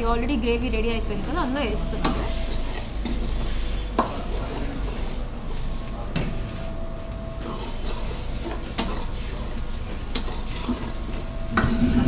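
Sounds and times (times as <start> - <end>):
ladle scraping wok: 2.0 - 5.6, 7.4 - 12.0.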